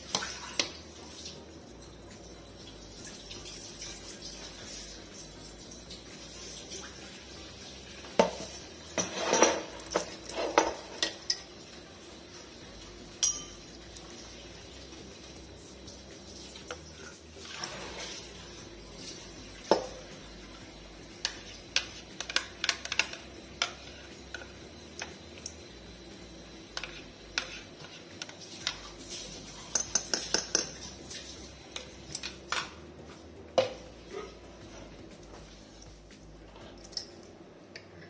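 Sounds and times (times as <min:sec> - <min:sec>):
metal spoon scraping and clinking: 0:09.0 - 0:11.5, 0:13.2 - 0:13.8, 0:26.7 - 0:31.0.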